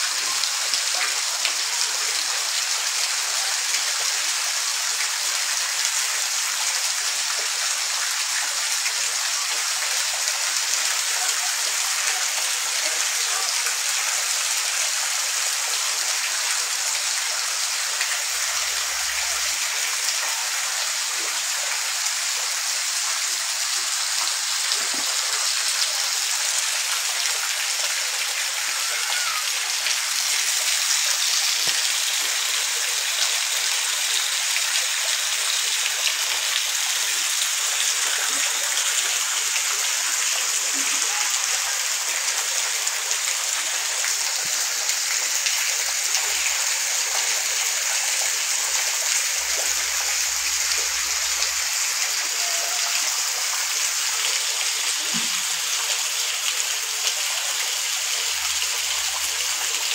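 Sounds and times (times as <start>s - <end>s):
heavy rain pouring: 16.5s - 57.1s.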